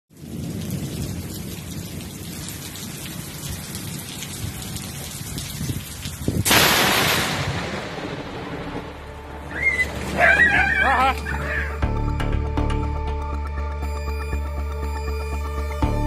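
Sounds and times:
steady heavy rain: 0:00.1 - 0:11.9
loud thunder crack: 0:06.3 - 0:10.2.

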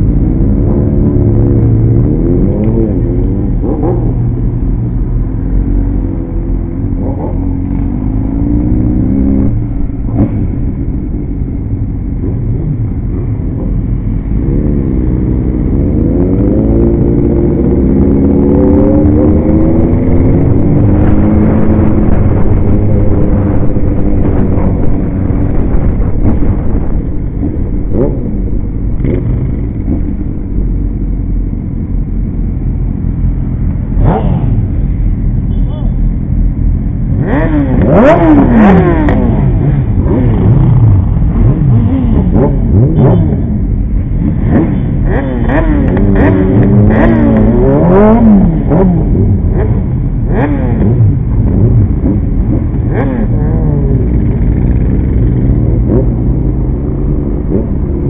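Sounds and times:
low rumble of motorcycles: 0:00.0 - 0:58.0
motorcycle engine accelerating: 0:00.0 - 0:58.0.

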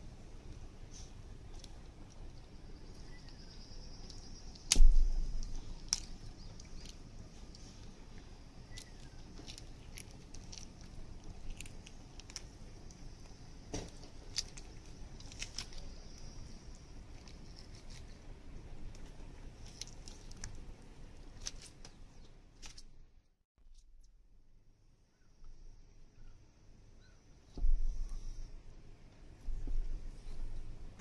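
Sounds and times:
low background rumble: 0:00.0 - 0:31.0
wet clicks and crackles: 0:04.0 - 0:18.2, 0:18.8 - 0:22.9.

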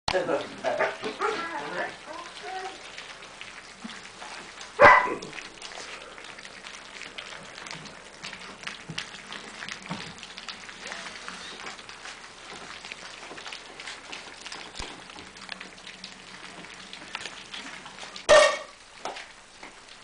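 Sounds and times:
puppies lapping wet food: 0:00.1 - 0:20.0
puppy yelp: 0:04.8 - 0:05.3, 0:18.3 - 0:18.7.

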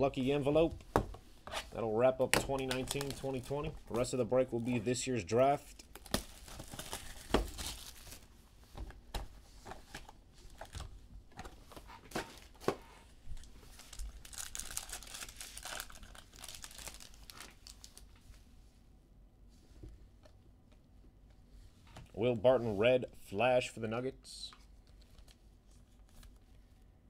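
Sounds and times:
wrappers tearing and crinkling: 0:02.7 - 0:03.5, 0:05.9 - 0:08.2, 0:13.4 - 0:18.1.

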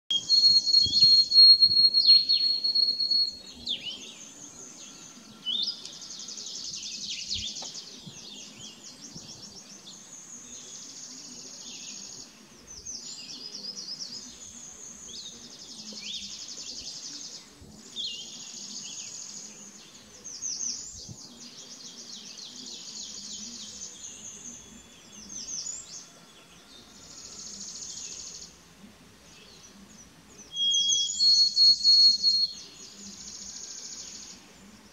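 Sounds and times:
songbird high steady whistle: 0:00.1 - 0:04.1, 0:30.4 - 0:34.4
songbird buzzy trills: 0:00.1 - 0:34.9.

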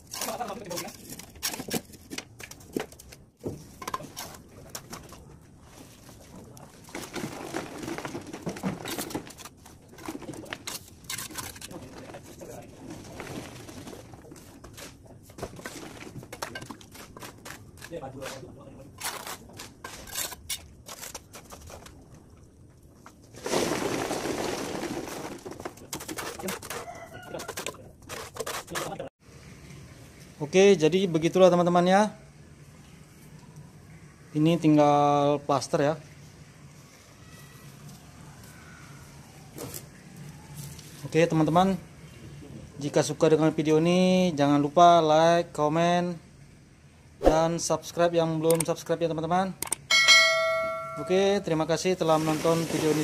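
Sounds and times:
bricks knocking and scraping: 0:00.0 - 0:05.4, 0:06.1 - 0:22.4, 0:23.0 - 0:29.1
water splashing: 0:52.1 - 0:53.0.

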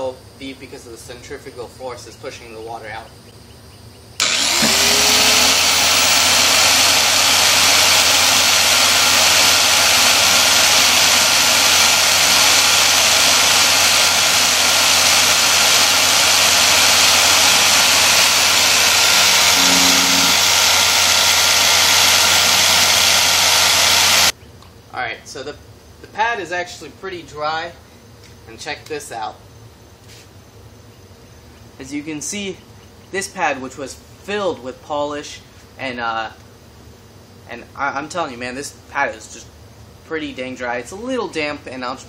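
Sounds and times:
electric polisher whirring: 0:04.2 - 0:24.3.

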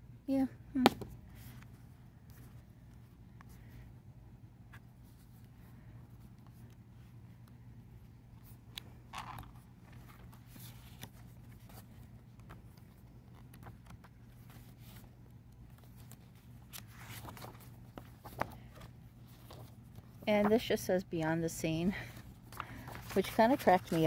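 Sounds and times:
book pages turning: 0:04.7 - 0:20.7, 0:22.2 - 0:24.0.

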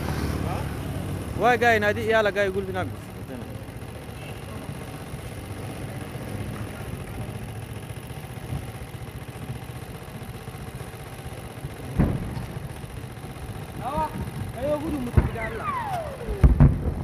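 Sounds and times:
distant fire rumble: 0:02.6 - 0:17.0
soft thuds of explosions: 0:11.9 - 0:12.6, 0:15.1 - 0:17.0.

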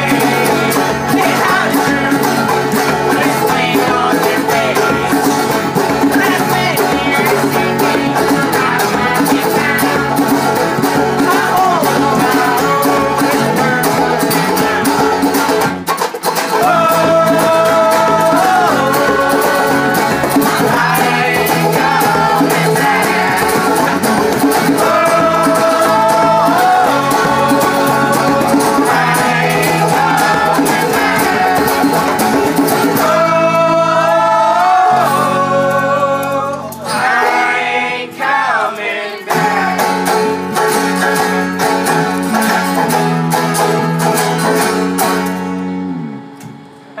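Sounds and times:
voices singing together: 0:00.0 - 0:15.6, 0:16.4 - 0:41.9
djembe: 0:00.0 - 0:35.1
bass: 0:00.0 - 0:38.6, 0:39.2 - 0:47.0
banjo: 0:00.0 - 0:46.2
acoustic guitars strumming: 0:00.0 - 0:47.0.

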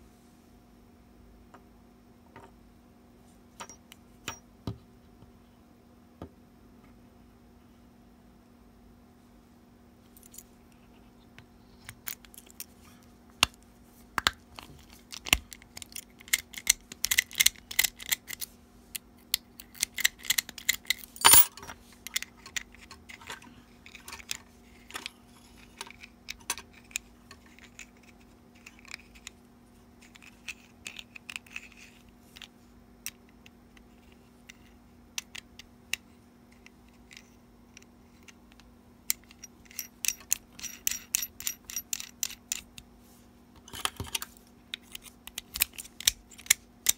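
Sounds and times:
small metal clicks and scrapes: 0:14.6 - 0:18.5, 0:19.3 - 0:29.4, 0:30.0 - 0:33.2, 0:43.6 - 0:46.9
key ring jangling: 0:21.2 - 0:21.5.

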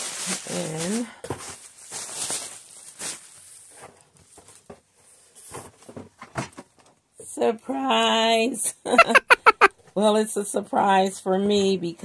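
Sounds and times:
plastic packing material crinkling: 0:00.0 - 0:04.6.

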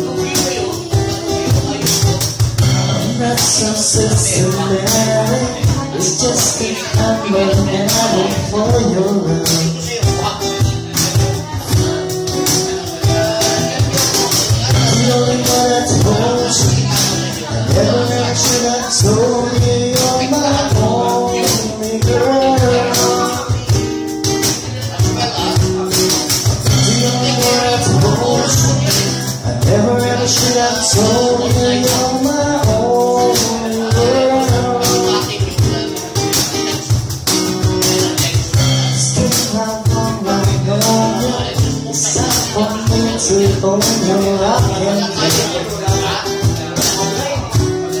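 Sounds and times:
woman singing into microphone: 0:00.0 - 0:09.6
acoustic band playing: 0:00.0 - 0:48.0
hand percussion rhythm: 0:00.0 - 0:48.0.

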